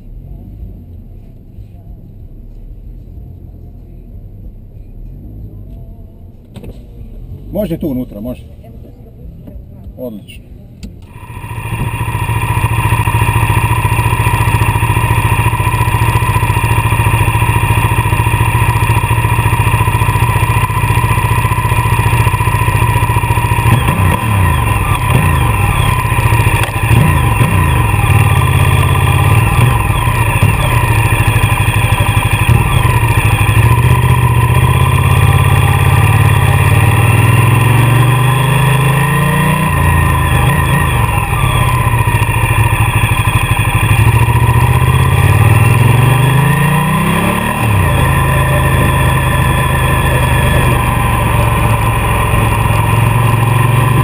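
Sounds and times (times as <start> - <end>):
motorcycle engine revving: 11.0 - 54.0.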